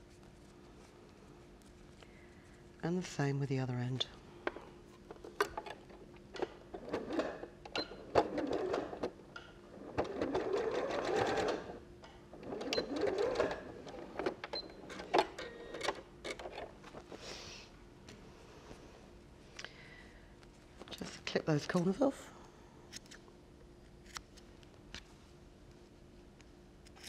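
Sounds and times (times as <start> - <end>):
sewing machine stitching: 6.4 - 11.8, 12.4 - 16.7.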